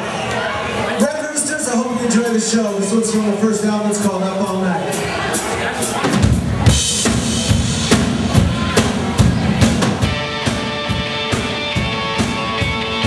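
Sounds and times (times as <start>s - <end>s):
drum kit beat: 4.0s - 13.0s
bass and electric guitars: 6.1s - 13.0s.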